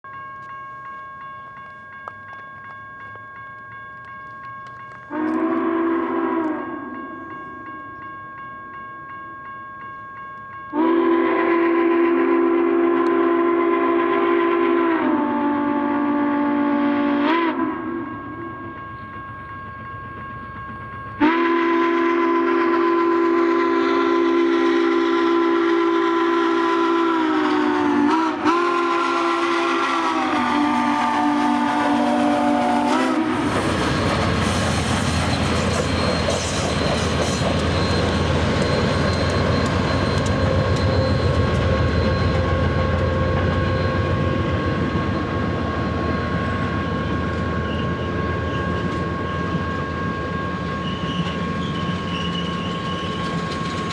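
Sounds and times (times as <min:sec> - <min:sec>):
chime steam whistle blowing: 0:00.1 - 0:53.9
train cars rumbling and clattering: 0:28.4 - 0:53.9.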